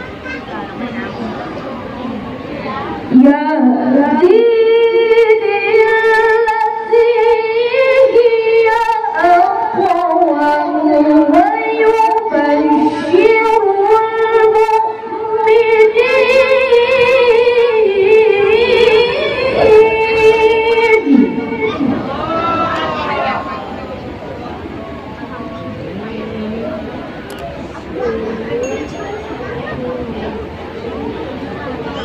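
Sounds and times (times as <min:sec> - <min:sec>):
woman chanting into a microphone: 0:02.6 - 0:22.1.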